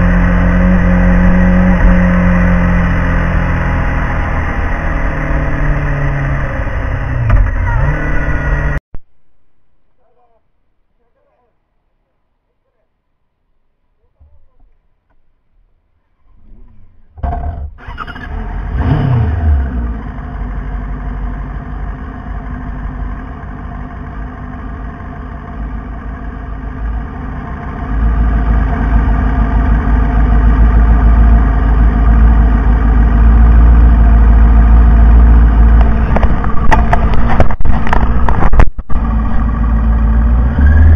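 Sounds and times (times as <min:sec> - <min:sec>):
motorcycle engine starting and idling: 0:16.6 - 0:40.9.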